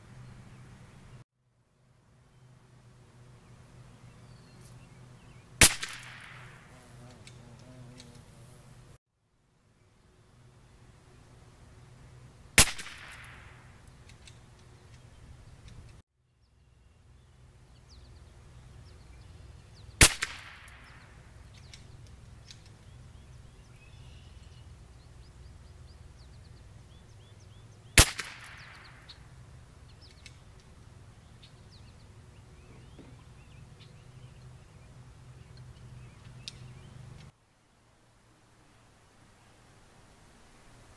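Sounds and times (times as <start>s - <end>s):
rifle shots echoing: 5.6s - 6.7s, 12.6s - 13.8s, 20.0s - 21.2s, 28.0s - 29.2s.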